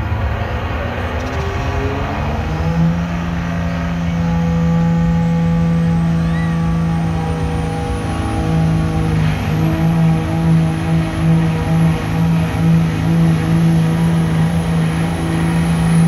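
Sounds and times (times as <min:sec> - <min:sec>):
diesel truck engine under load: 0:00.0 - 0:16.0
faint high whistle: 0:06.2 - 0:07.0.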